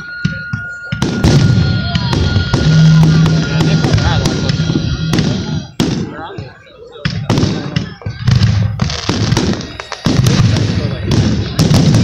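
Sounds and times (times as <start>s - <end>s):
loud music: 0.0s - 6.0s
fireworks bangs: 0.0s - 12.0s.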